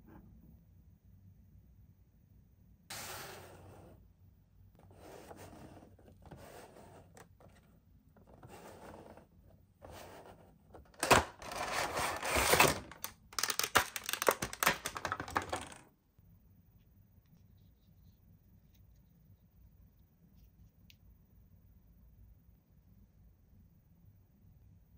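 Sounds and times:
packaging rustling: 0:10.9 - 0:15.8.

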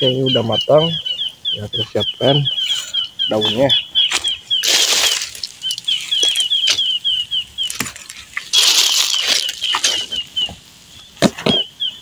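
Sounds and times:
high chirping: 0:00.0 - 0:12.0
leaves sizzling in hot oil: 0:04.6 - 0:06.5, 0:07.7 - 0:10.0.

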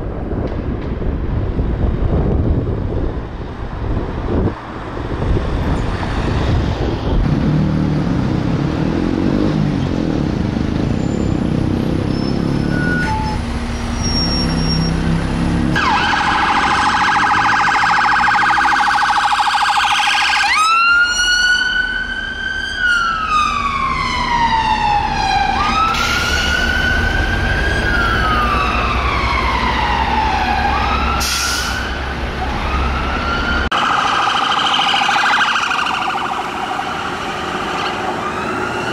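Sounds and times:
traffic noise: 0:00.0 - 0:38.9
ambulance siren: 0:15.7 - 0:38.9.

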